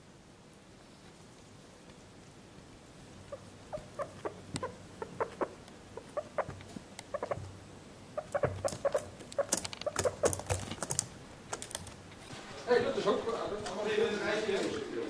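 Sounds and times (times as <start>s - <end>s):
guinea pig squeaking: 3.2s - 11.0s
claws clicking on keyboard: 8.4s - 12.0s.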